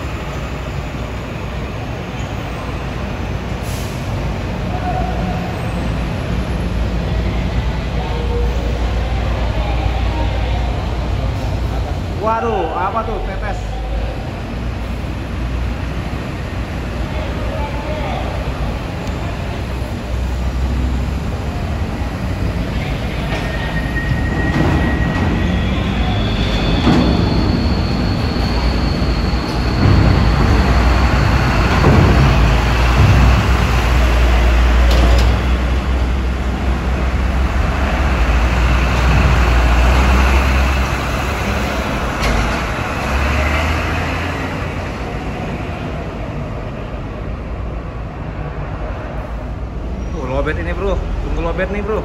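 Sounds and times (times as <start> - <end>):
diesel truck engine rumble: 0.0 - 52.0.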